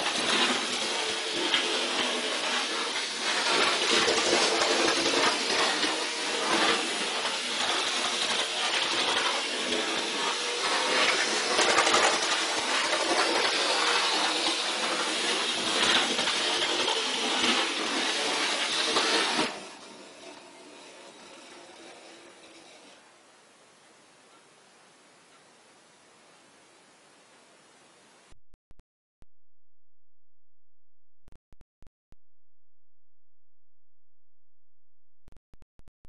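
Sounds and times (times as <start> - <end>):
model train wheels rattling on rails: 0.1 - 23.0.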